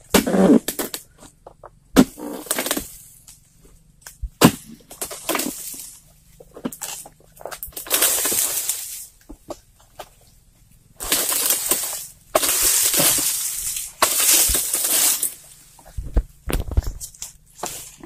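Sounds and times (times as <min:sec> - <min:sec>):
palm fronds crashing: 0:02.0 - 0:03.1, 0:04.4 - 0:09.2, 0:11.0 - 0:18.0
low thuds: 0:04.0 - 0:04.9.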